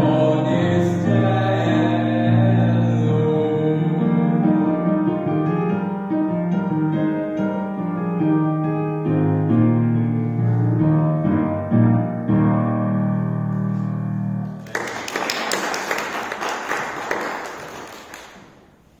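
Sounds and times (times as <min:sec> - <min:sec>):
piano chords: 0:00.0 - 0:19.0
applause: 0:14.6 - 0:18.7.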